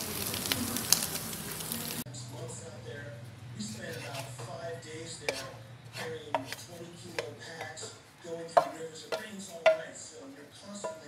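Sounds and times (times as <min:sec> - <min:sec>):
spatula scraping frying pan: 0:03.6 - 0:11.0
wooden spatula knocking on pan: 0:05.3 - 0:10.0, 0:10.8 - 0:11.0.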